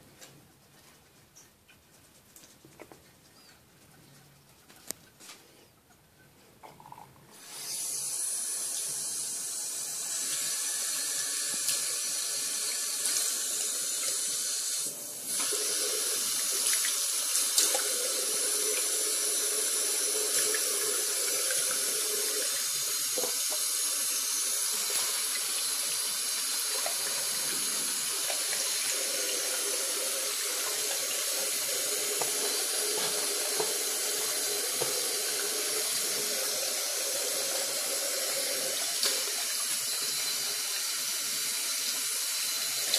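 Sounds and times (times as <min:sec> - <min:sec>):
tap water splashing into basin: 0:32.1 - 0:36.4.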